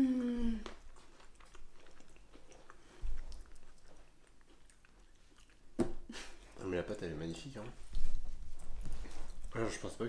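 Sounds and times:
chewing cookie: 0:00.6 - 0:10.0.

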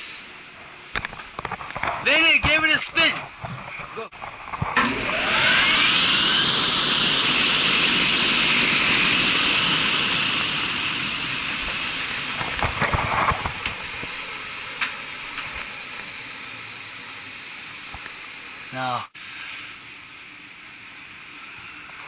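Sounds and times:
fan drive rushing air: 0:00.0 - 0:22.0
high motor whine: 0:02.2 - 0:19.0.

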